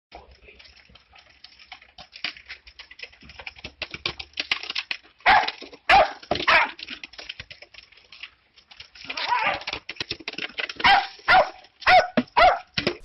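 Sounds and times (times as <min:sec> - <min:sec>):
small dog barking: 0:05.2 - 0:06.7, 0:10.8 - 0:12.7.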